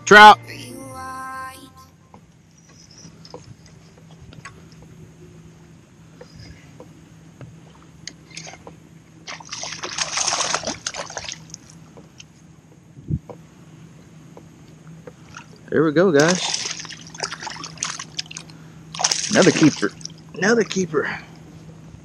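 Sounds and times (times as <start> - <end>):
water lapping: 2.6 - 12.7, 14.3 - 21.9
fish splashing and thrashing: 8.1 - 12.3, 16.2 - 20.5.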